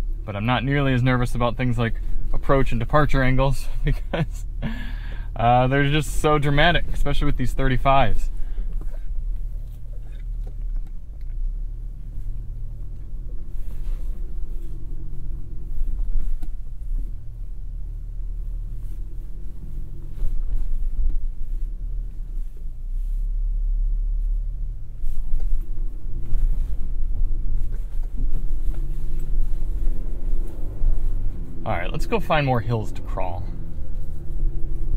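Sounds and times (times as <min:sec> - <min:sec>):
truck engine rumbling at low revs: 0:00.0 - 0:34.9.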